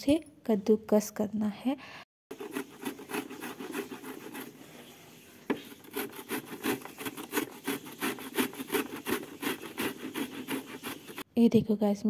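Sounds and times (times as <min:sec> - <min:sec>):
cucumber grating strokes: 0:02.3 - 0:11.3.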